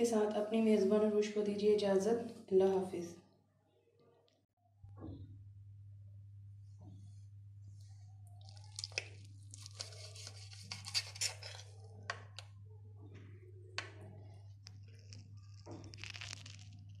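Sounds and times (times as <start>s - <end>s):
knife and fork scraping plate: 9.6s - 11.8s.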